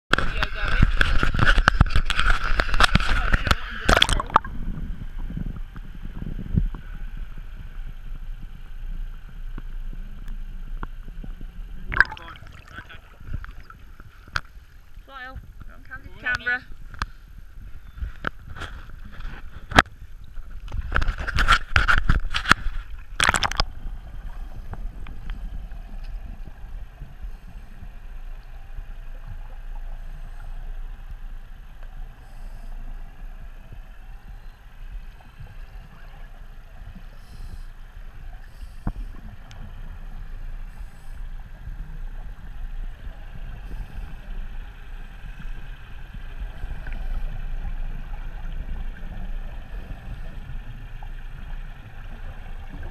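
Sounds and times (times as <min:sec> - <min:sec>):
camera splashing into water: 0:00.1 - 0:04.5, 0:11.9 - 0:14.6, 0:20.7 - 0:23.7
muffled underwater rumble: 0:00.1 - 0:52.9
exhaust bubbles bursting: 0:03.8 - 0:05.5, 0:11.8 - 0:14.5.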